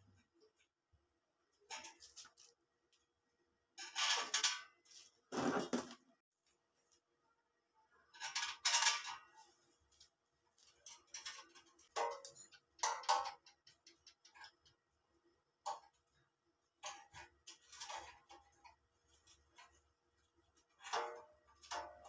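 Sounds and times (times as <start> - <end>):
sheet metal scraping and clinking: 1.7 - 2.5, 3.8 - 6.0, 8.2 - 9.8, 10.6 - 14.8, 16.8 - 19.9, 20.6 - 22.0.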